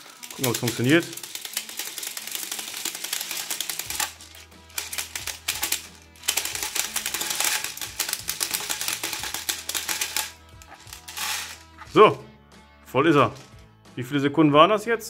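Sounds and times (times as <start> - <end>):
bbs rattling: 0.0 - 12.0, 13.1 - 13.6
speedloader ratcheting clicks: 0.2 - 11.5.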